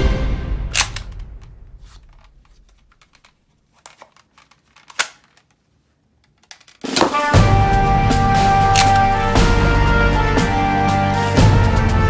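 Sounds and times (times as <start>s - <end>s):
background music: 0.0s - 2.0s, 6.9s - 12.0s
plastic toy clicks and knocks: 0.8s - 5.5s, 6.2s - 7.2s.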